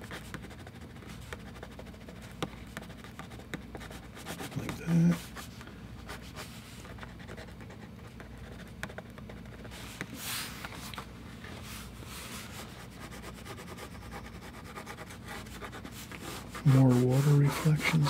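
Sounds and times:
grease pencil scraping on paper: 0:12.6 - 0:18.0.

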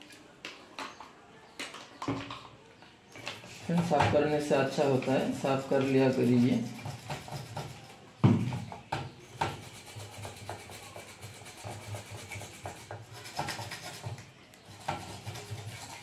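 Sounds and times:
toothbrush scrubbing circuit board: 0:05.2 - 0:08.0, 0:09.6 - 0:16.0.

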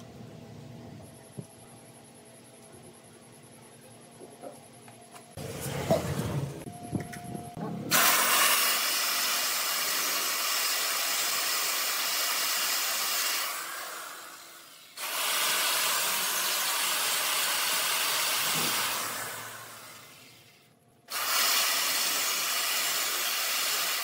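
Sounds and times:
electric chainsaw cutting wood: 0:07.9 - 0:20.5, 0:21.1 - 0:24.0.

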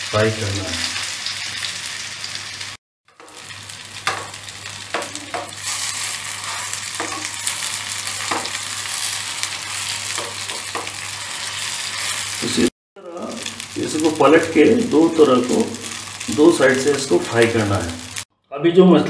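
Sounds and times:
food sizzling in oil: 0:00.0 - 0:18.3
metal spatula scraping a pan: 0:03.1 - 0:12.7.

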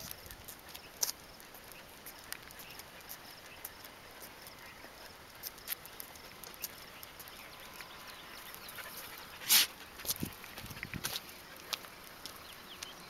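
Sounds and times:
dog paws clicking on asphalt: 0:00.0 - 0:13.0
footsteps on asphalt: 0:00.0 - 0:13.0
sharp scrape: 0:09.4 - 0:09.8.

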